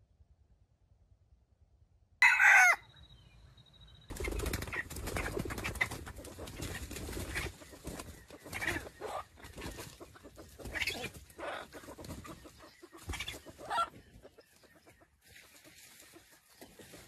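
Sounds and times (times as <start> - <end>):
junglefowl clucking: 4.6 - 17.0.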